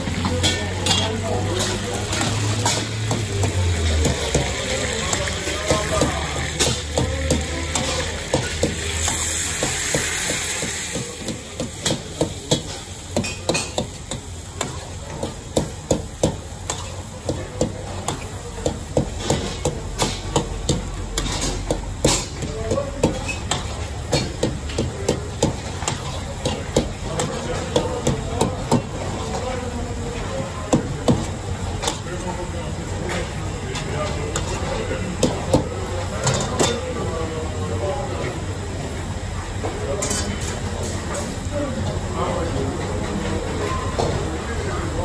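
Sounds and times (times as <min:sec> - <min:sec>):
sauce sizzling in a pan: 0:08.1 - 0:11.1.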